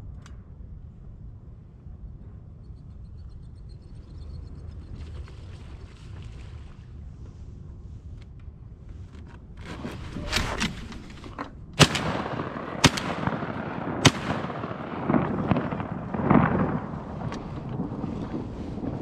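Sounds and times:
wind noise on microphone: 0.0 - 19.0
shotgun shots: 11.8 - 17.3.

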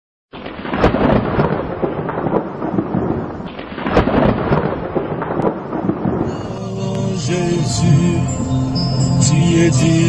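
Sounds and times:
thunder rumbling: 0.4 - 8.5.

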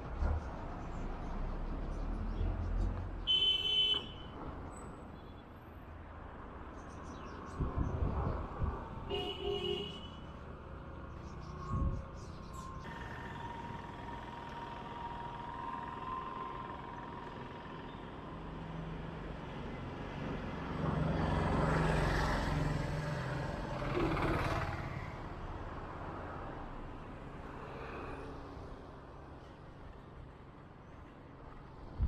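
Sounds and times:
motor vehicles passing: 10.4 - 29.2.

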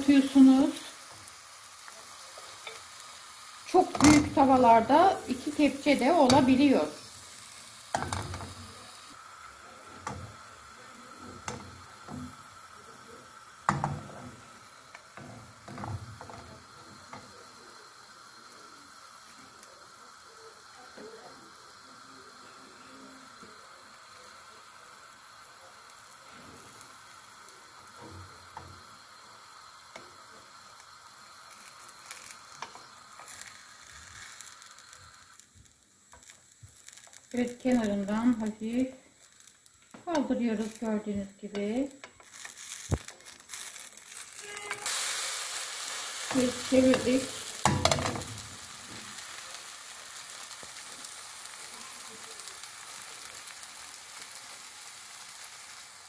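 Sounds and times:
batter sizzling in pan: 0.0 - 56.0.

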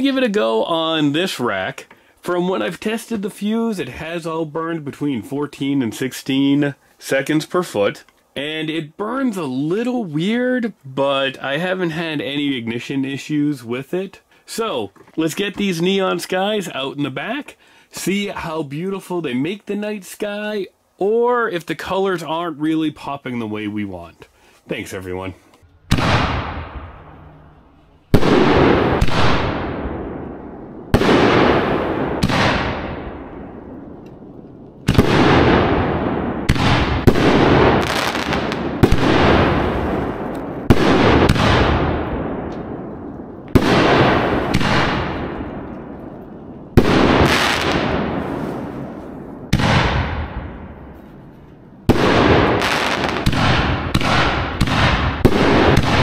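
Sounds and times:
fireworks shells booming: 25.7 - 56.0.

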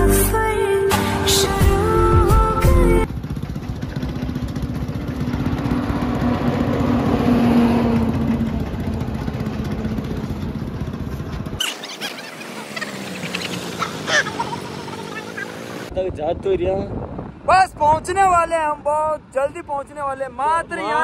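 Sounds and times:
vehicle engine passing: 3.0 - 15.9
low traffic rumble: 3.0 - 21.0.

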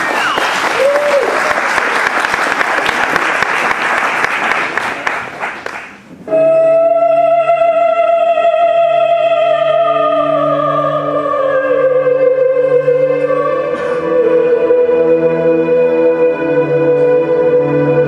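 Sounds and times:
audience applause: 0.0 - 6.0.

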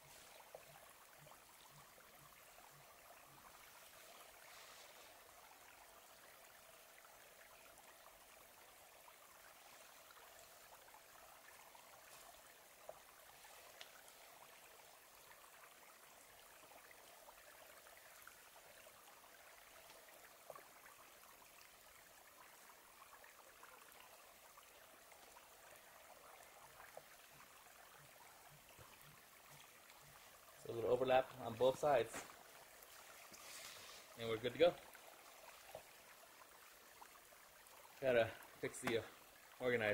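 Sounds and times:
faint outdoor hiss: 0.0 - 39.9
faint clicks: 13.7 - 14.1.

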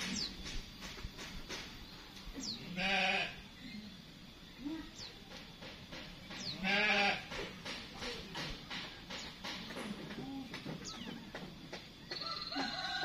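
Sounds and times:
small birds chirping: 0.0 - 13.0
quavering animal bleats: 2.6 - 3.5, 6.5 - 7.3.

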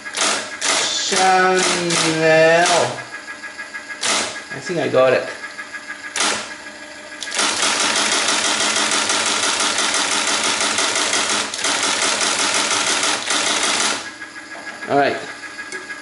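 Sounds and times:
tape punch mechanical rattle: 0.0 - 3.2, 3.9 - 4.7, 6.0 - 14.2.

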